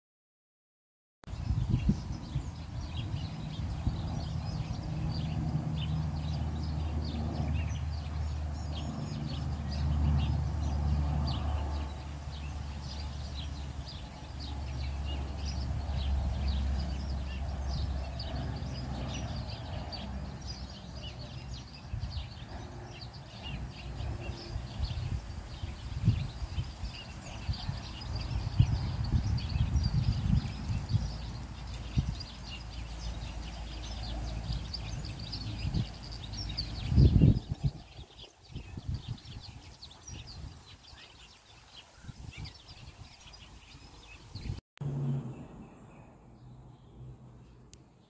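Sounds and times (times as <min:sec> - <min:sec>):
small birds chirping: 0:01.3 - 0:44.6
low rumble: 0:44.8 - 0:47.7.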